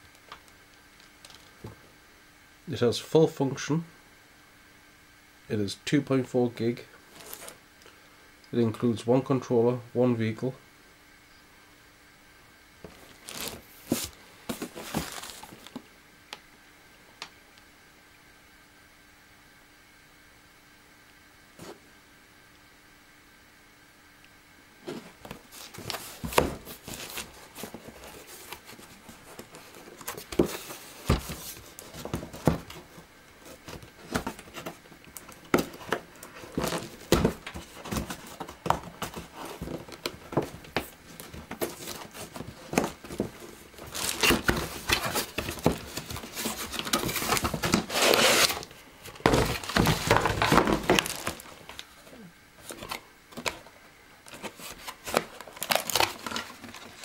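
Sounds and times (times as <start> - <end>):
packaging crinkling and tearing: 13.0 - 15.8, 43.8 - 48.7, 49.3 - 51.9, 54.3 - 57.0.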